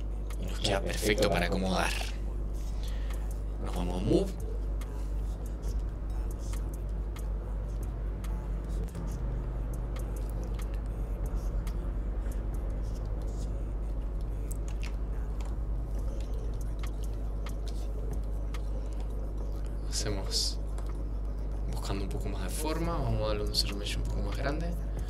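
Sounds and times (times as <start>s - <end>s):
steady low hum: 0.0s - 25.0s
keyboard and mouse clicks: 20.7s - 21.0s.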